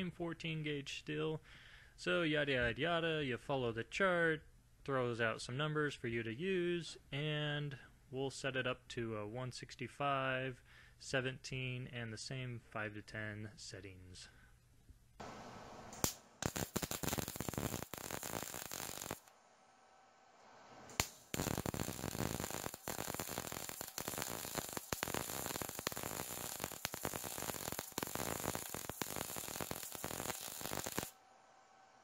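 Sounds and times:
welding arc crackling: 15.9 - 19.3, 20.9 - 31.2.

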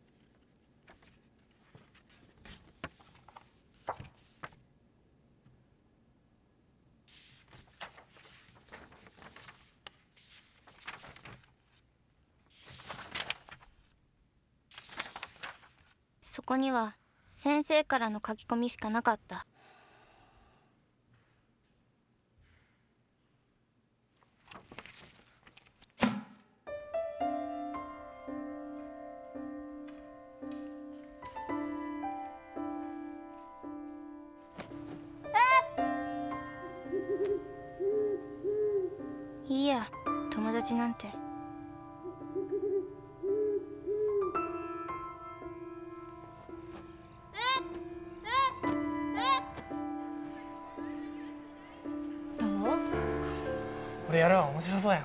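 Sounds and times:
notebook pages turning: 0.0 - 4.6, 7.1 - 11.8, 12.5 - 14.0, 14.7 - 16.0, 24.2 - 26.0, 34.5 - 35.2
sharp thump: 26.0 - 26.4
gentle piano music: 26.7 - 55.0.

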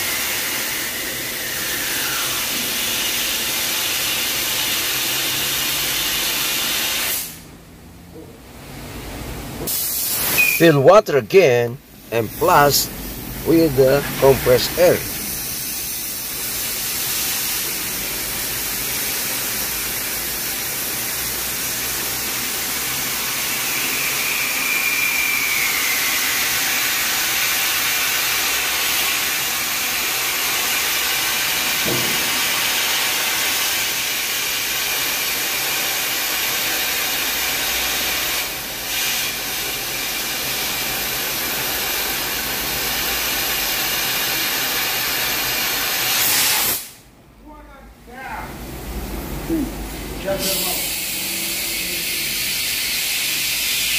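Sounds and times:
compressed air hissing: 0.0 - 7.5, 9.6 - 10.8, 12.0 - 47.0, 50.3 - 53.9.

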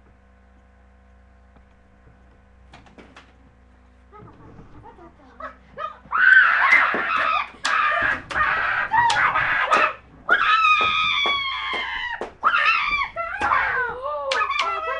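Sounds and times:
girls screaming and yelling: 5.5 - 14.9.

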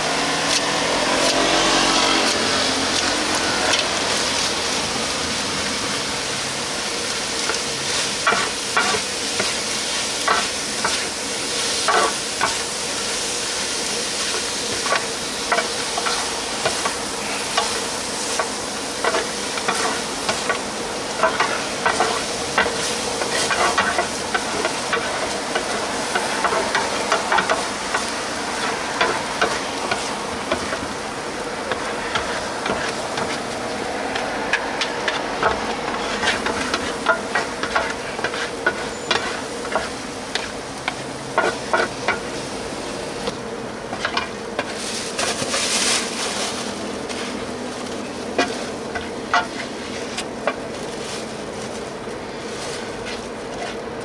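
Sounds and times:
food sizzling in a pan: 0.0 - 51.8
steady hum: 2.5 - 54.0
spatula scraping metal pan: 14.3 - 20.6, 21.2 - 30.8, 31.7 - 42.3, 48.4 - 50.2.

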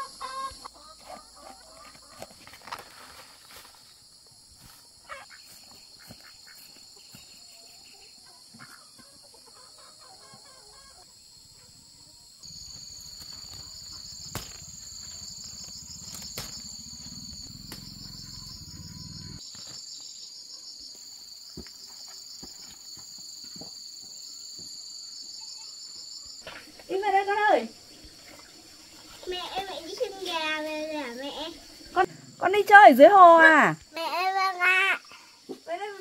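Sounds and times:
insects buzzing: 9.5 - 36.0.

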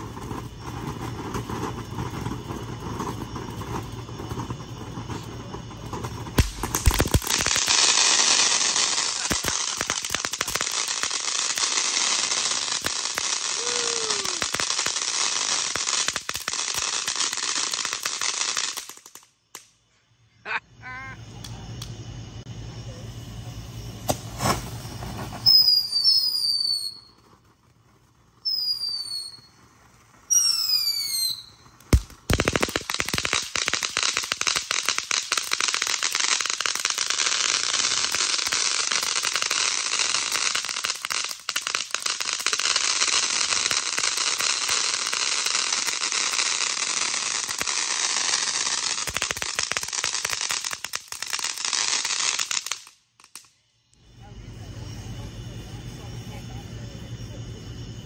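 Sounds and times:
firework bang: 0.0 - 11.0, 24.0 - 26.1, 31.0 - 34.9
fountain firework hissing and crackling: 0.0 - 19.8, 21.4 - 58.0
firework whistles: 0.0 - 20.4, 21.2 - 58.0.

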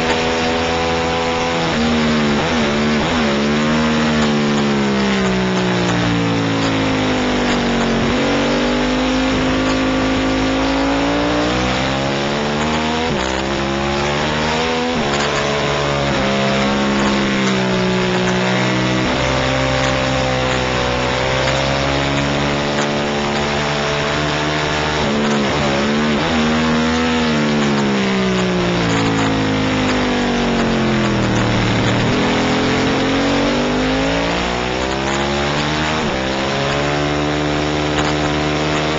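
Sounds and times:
motorcycle engine accelerating: 0.0 - 38.9.

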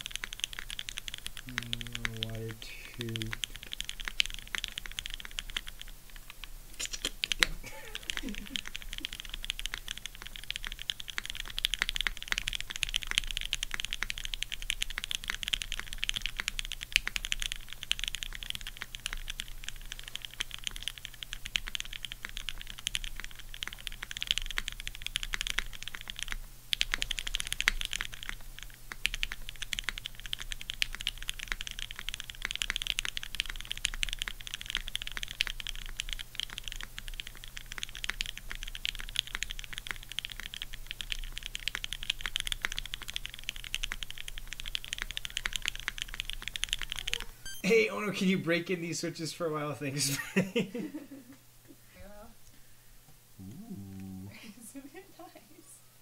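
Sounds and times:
fast mechanical keyboard typing: 0.0 - 47.3.

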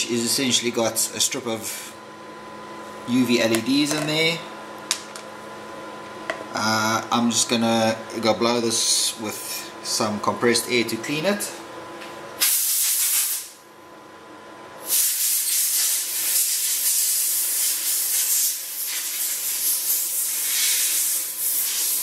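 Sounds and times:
compressed air hissing: 12.4 - 13.6, 14.9 - 22.0.

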